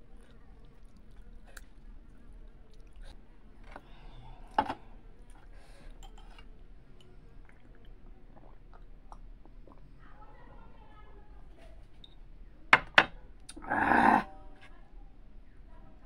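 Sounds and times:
soft chewing: 0.0 - 12.4
sipping and swallowing: 7.4 - 9.9.

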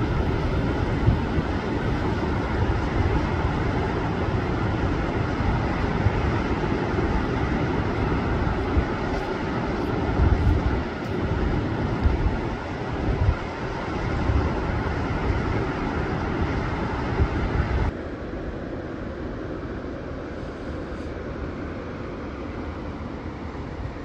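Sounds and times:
surf rushing onto beach: 0.0 - 17.9
wind buffeting microphone: 0.0 - 18.0.

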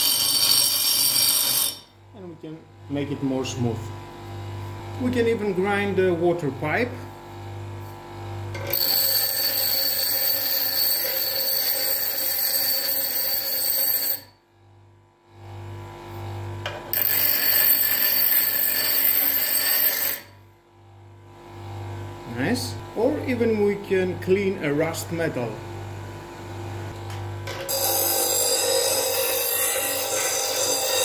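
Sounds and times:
grinder wheel screeching on metal pipe: 0.0 - 1.9, 8.6 - 14.3, 16.9 - 20.4, 27.6 - 31.0
grinder motor hum: 0.0 - 31.0.

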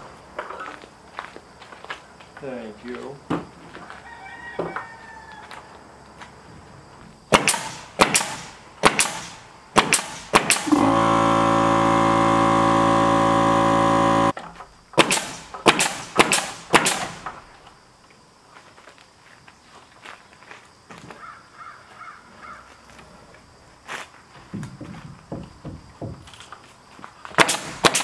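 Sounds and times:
nail gun shots: 7.3 - 14.3, 15.0 - 17.4, 27.4 - 28.0
machine hum: 10.5 - 14.4.

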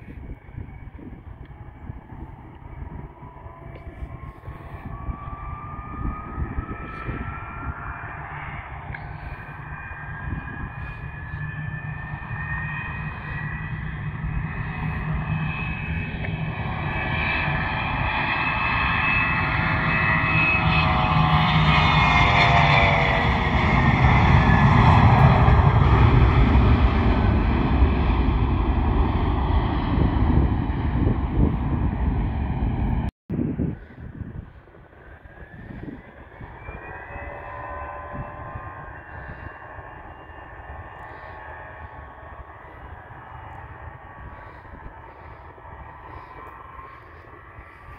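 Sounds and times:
jet engine whine and rumble: 0.0 - 47.9.

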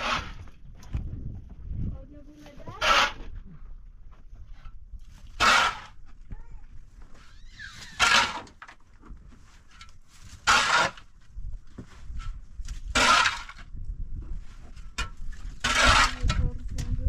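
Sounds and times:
shovel scraping dry earth: 0.0 - 0.6, 2.5 - 3.4, 4.5 - 6.1, 7.1 - 16.7
knocks of soil and stones: 0.0 - 17.0.

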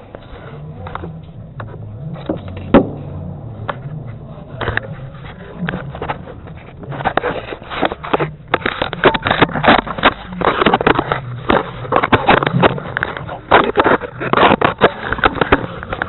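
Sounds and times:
steady low hum: 0.0 - 16.0
camera handling rubbing and scraping: 3.6 - 16.0.

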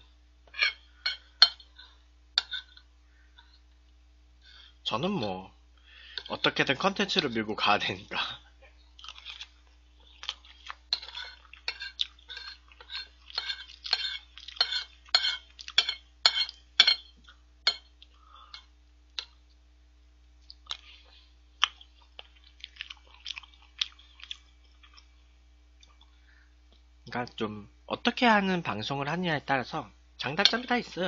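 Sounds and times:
spoon clinking on plate: 0.5 - 2.8, 10.9 - 17.9
close-up chewing: 8.9 - 15.8, 20.4 - 25.2.

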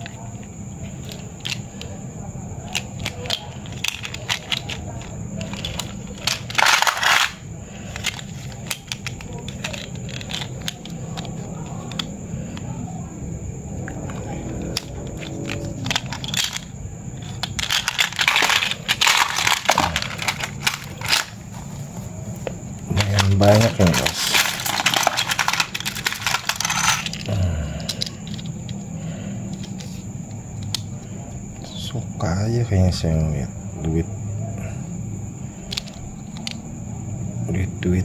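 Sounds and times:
coins clinking: 2.7 - 7.4, 14.8 - 21.4, 22.9 - 28.8
rustling: 13.9 - 27.3.

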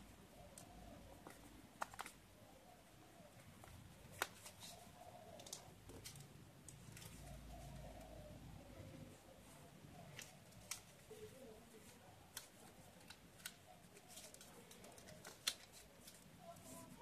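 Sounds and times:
paper rustling being folded: 3.5 - 7.4, 9.5 - 17.0
sharp paper crackles: 4.0 - 7.3, 10.0 - 17.0.

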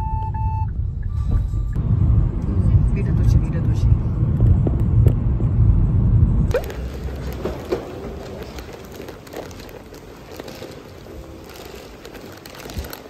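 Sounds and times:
road rumble inside car: 0.0 - 13.0
footsteps: 6.5 - 13.0
suitcase wheels rolling on stone: 6.5 - 13.0.

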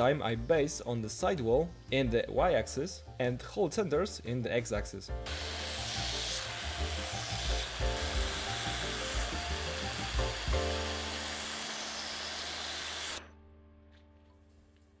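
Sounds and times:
end mill cutting steel: 5.3 - 13.3
hissing grind: 5.3 - 13.3
spindle humming: 5.3 - 13.3.

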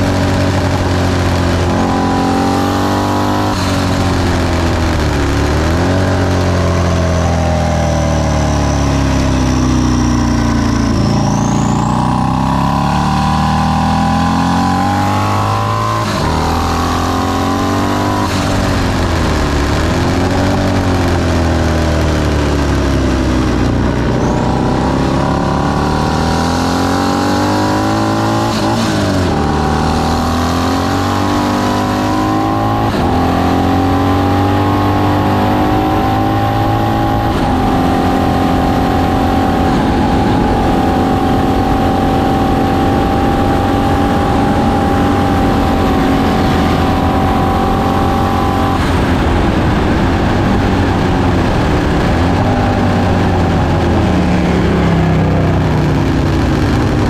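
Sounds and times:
racing motorcycle engine: 0.0 - 57.0
wind rush: 32.0 - 57.0.

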